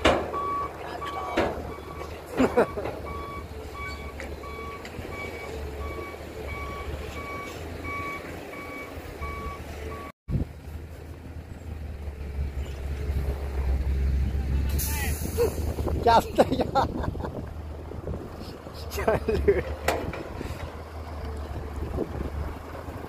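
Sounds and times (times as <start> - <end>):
diesel engine running: 0.0 - 23.0
reversing alarm beeping: 0.3 - 10.1.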